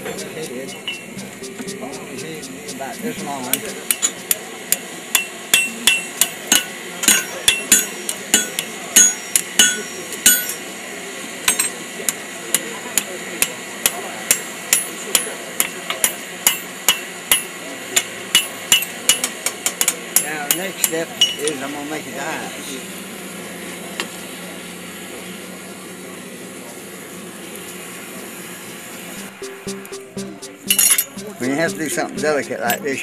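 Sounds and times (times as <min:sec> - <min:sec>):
hammer striking steel on anvil: 0:00.0 - 0:10.7, 0:11.4 - 0:21.4, 0:29.2 - 0:32.9.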